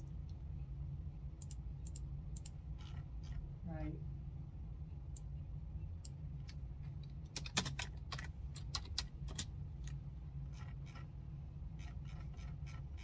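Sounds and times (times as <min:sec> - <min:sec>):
steady low hum: 0:00.0 - 0:13.0
typing on computer keyboard: 0:07.3 - 0:09.5.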